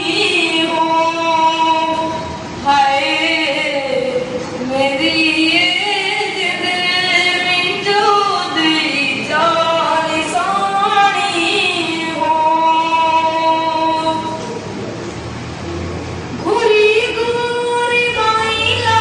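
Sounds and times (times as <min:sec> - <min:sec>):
boy singing folk song: 0:00.0 - 0:14.5.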